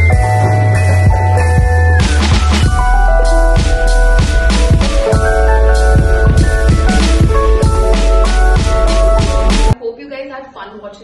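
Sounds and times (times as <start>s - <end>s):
background music with drum beat: 0.0s - 9.8s.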